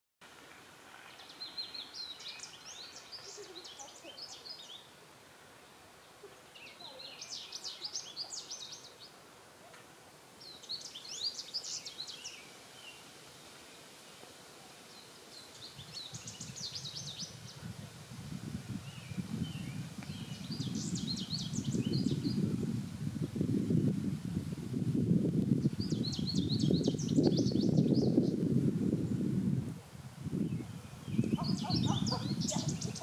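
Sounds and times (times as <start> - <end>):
small songbird singing: 1.1 - 4.9, 6.4 - 9.2, 10.4 - 13.0, 14.9 - 17.7, 18.8 - 22.6, 25.6 - 28.5, 30.4 - 33.0.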